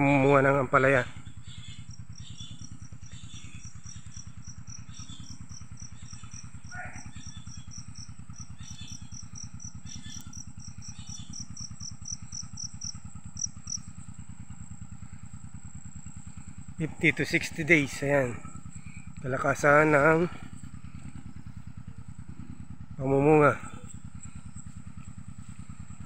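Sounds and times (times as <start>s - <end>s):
low engine-like drone: 0.0s - 26.0s
insect chirping: 1.1s - 26.0s.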